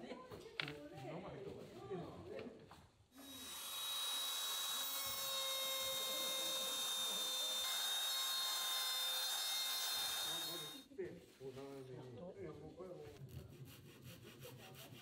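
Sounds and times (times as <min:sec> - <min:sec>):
trim router cutting wood: 0:03.2 - 0:10.8.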